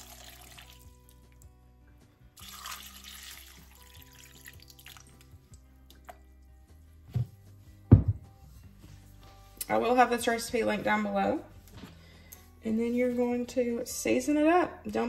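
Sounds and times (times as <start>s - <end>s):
water pouring into a pot: 0.0s - 1.2s, 2.4s - 6.2s
soft background music: 0.0s - 15.0s.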